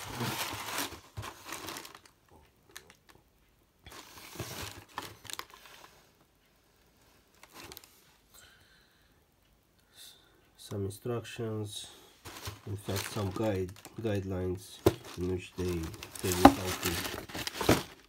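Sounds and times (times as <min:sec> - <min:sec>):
cardboard and tissue paper rustling: 0:00.0 - 0:02.1, 0:03.9 - 0:06.0, 0:07.4 - 0:08.0, 0:12.2 - 0:14.0, 0:14.8 - 0:18.0.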